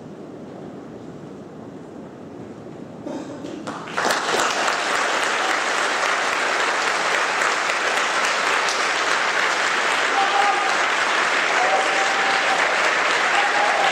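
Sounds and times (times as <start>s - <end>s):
audience applauding: 3.6s - 13.9s.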